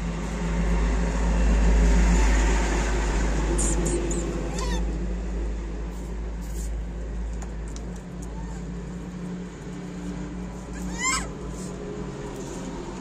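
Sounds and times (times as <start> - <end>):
low mechanical hum: 0.0 - 13.0
short high squeak: 3.6 - 4.9.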